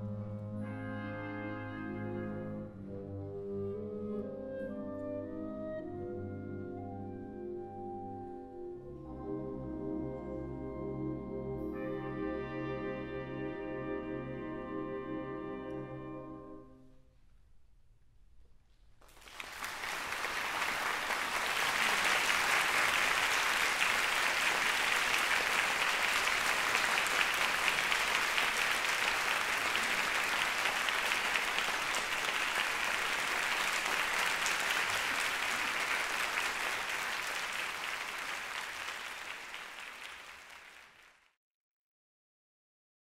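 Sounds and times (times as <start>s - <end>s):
audience applauding: 19.0s - 41.4s.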